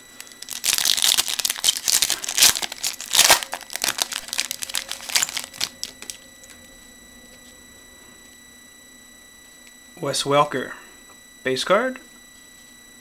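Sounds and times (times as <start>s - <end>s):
foil pack tearing and crinkling: 0.2s - 6.2s.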